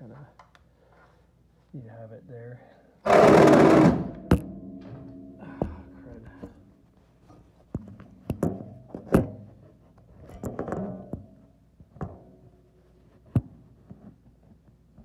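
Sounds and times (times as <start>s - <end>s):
knocks and clanks of metal tools: 3.1s - 6.6s.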